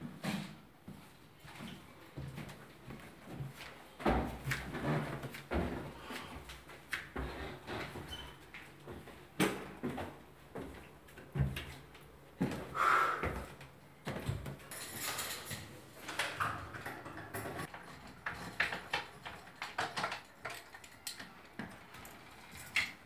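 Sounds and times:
footsteps on a staircase: 0:00.0 - 0:14.7.

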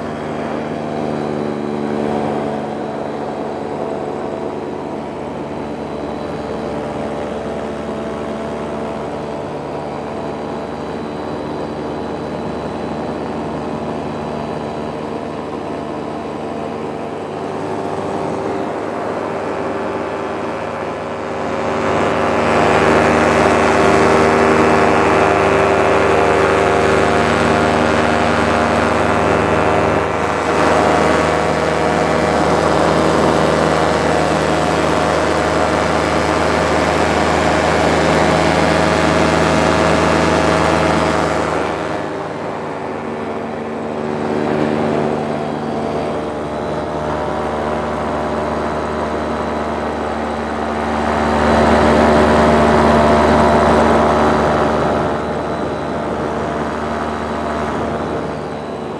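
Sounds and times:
paramotor engine and propeller: 0:00.0 - 0:58.9.

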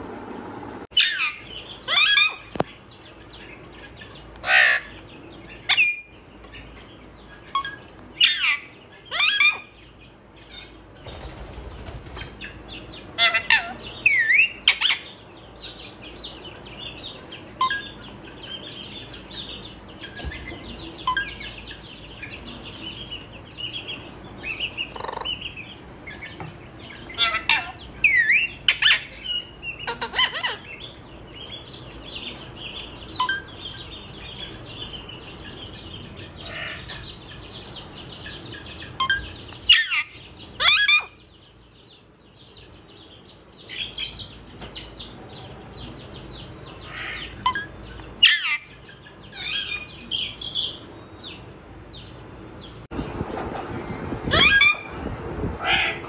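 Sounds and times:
parrot chattering chirps: 0:01.0 - 0:02.5, 0:04.4 - 0:05.0, 0:07.5 - 0:09.8, 0:13.2 - 0:15.1, 0:17.6 - 0:18.1, 0:24.4 - 0:26.2, 0:27.1 - 0:30.9, 0:38.8 - 0:41.2, 0:46.8 - 0:50.8, 0:54.3 - 0:55.0
parrot whistles and squawks: 0:01.0 - 0:02.5, 0:39.0 - 0:41.2, 0:54.3 - 0:54.9.

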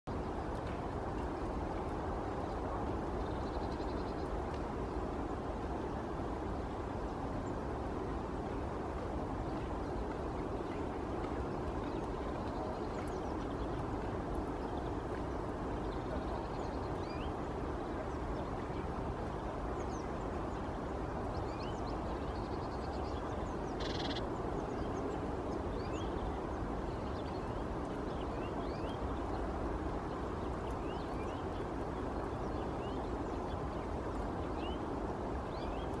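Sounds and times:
bird call: 0:23.8 - 0:24.2
high bird chirps: 0:23.8 - 0:24.2.

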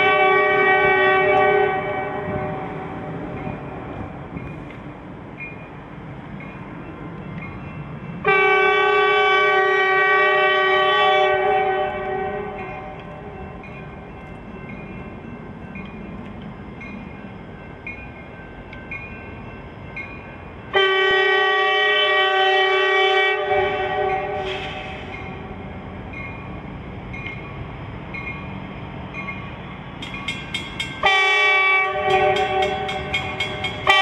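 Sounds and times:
locomotive air horn blasts: 0:00.0 - 0:02.8, 0:08.2 - 0:13.0, 0:20.7 - 0:25.3, 0:31.0 - 0:33.2, 0:33.8 - 0:34.0
crossing bell dinging: 0:00.0 - 0:21.6, 0:25.0 - 0:34.0
train rumbling: 0:00.0 - 0:34.0.

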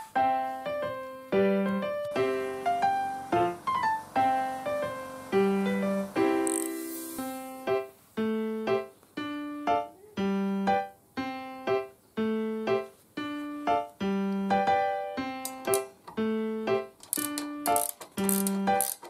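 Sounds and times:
piano music: 0:00.0 - 0:19.0
ratcheting wrench clicks: 0:06.4 - 0:06.7, 0:17.0 - 0:19.0.

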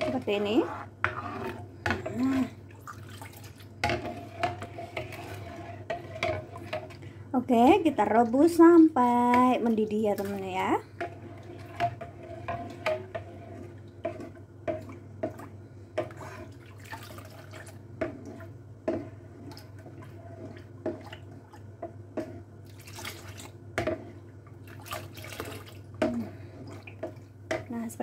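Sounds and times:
liquid sloshing in pan: 0:00.0 - 0:28.0.

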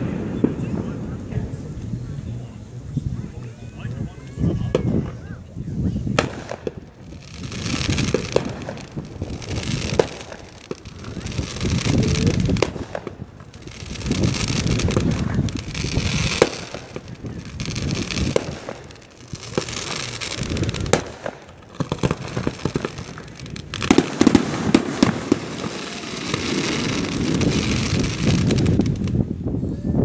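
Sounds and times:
fireworks bangs and crackles: 0:00.0 - 0:30.0.

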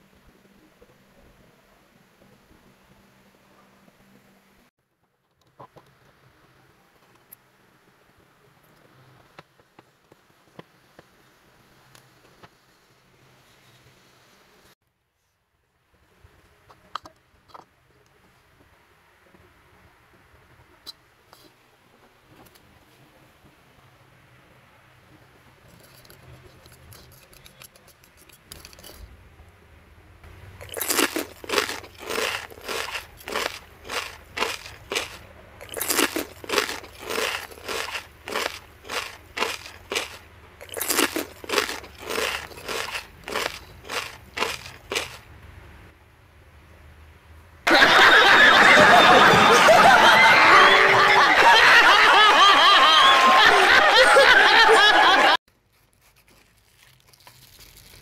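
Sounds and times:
utensil grinding powder in bowl: 0:30.6 - 0:45.2
studio audience laughter: 0:47.7 - 0:55.4.

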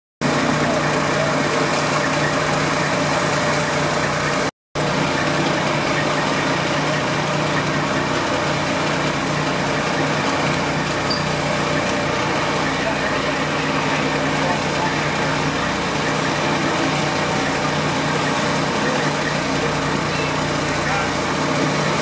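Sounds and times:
fire engine running: 0:00.2 - 0:22.0.

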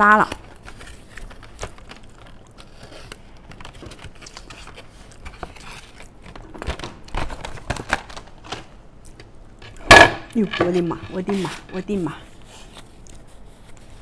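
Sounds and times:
paper box crinkling and rustling: 0:00.2 - 0:08.7, 0:10.4 - 0:14.0.

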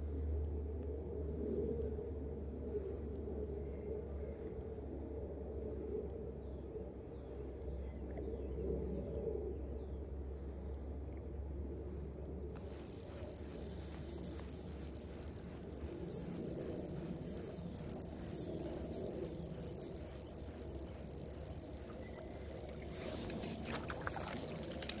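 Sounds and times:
fish splashing at surface: 0:12.6 - 0:25.0
fishing reel ticking: 0:12.6 - 0:25.0.

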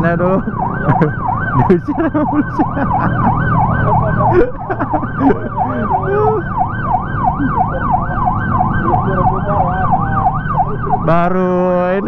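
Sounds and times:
police siren yelping: 0:00.0 - 0:12.0.

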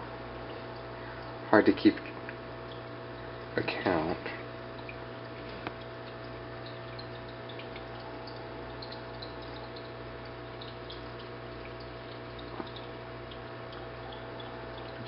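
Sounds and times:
aquarium pump humming: 0:00.0 - 0:15.0
water trickling and bubbling: 0:00.0 - 0:15.0
drip-like pops: 0:04.7 - 0:15.0.

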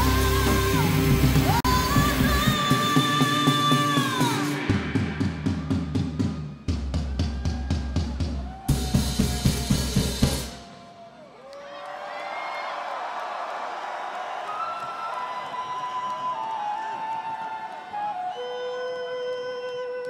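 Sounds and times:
crowd cheering: 0:00.0 - 0:20.0
fast drum hits: 0:02.0 - 0:10.7.

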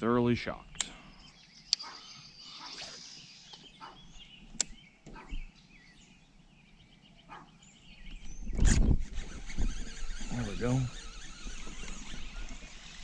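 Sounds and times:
faint bird calls: 0:00.7 - 0:13.0
sharp click: 0:00.8 - 0:01.0, 0:04.6 - 0:05.2.

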